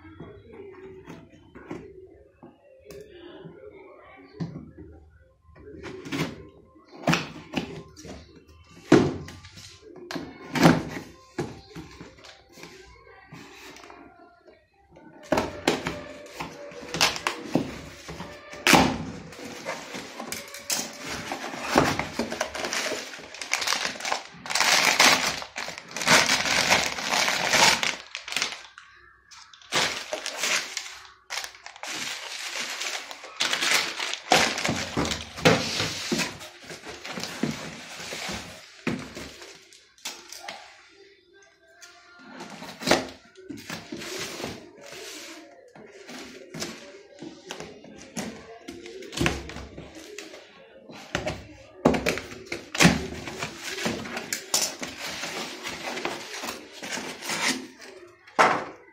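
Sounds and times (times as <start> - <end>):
bubble wrap and cardboard rustling: 15.6 - 40.0, 42.4 - 50.4, 51.9 - 58.1.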